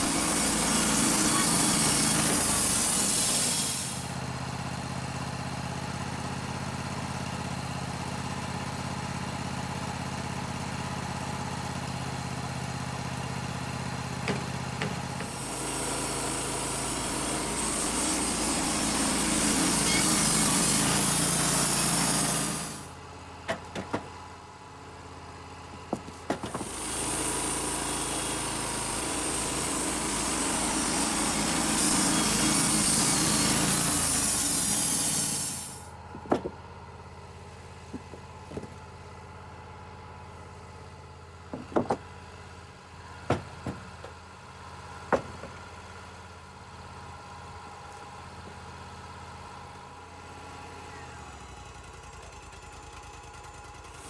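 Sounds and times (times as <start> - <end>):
band sawmill running: 0.0 - 54.0
wooden boards knocking: 14.2 - 15.3, 23.5 - 24.1, 25.9 - 26.7, 36.2 - 36.5, 37.9 - 38.8, 41.5 - 42.0, 43.3 - 44.2, 45.1 - 45.6.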